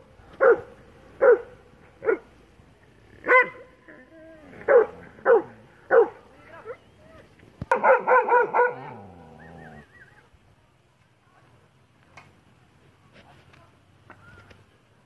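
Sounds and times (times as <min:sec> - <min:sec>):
dog barking: 0:00.4 - 0:02.3, 0:03.2 - 0:03.7, 0:04.6 - 0:06.2, 0:07.7 - 0:09.2.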